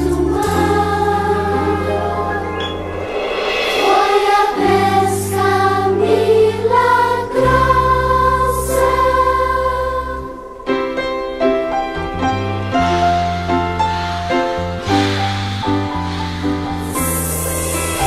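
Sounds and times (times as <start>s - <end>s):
held bass notes: 0.0s - 10.3s
choir singing slow melody: 0.0s - 11.0s.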